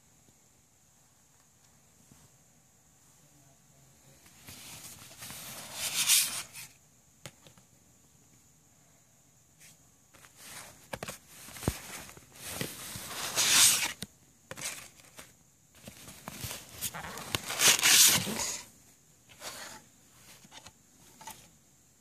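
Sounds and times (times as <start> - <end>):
cardboard and paper rustling: 4.4 - 6.7, 10.2 - 18.7.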